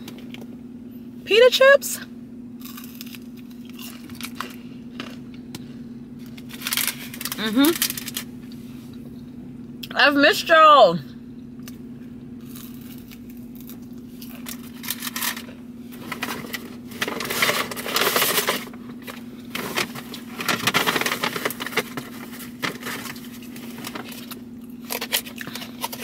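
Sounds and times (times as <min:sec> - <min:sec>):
low hum: 0:00.0 - 0:26.0
takeout bag rustling: 0:14.7 - 0:24.3.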